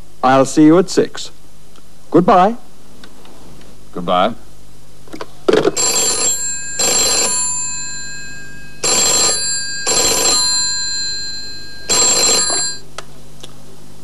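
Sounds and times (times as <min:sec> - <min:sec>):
desk telephone ringing: 0:05.6 - 0:12.9.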